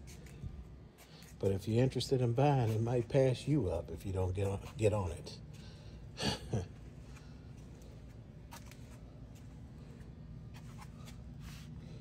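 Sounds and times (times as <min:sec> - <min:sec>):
faint handling clicks and rustles: 0:00.0 - 0:03.6, 0:06.7 - 0:12.0.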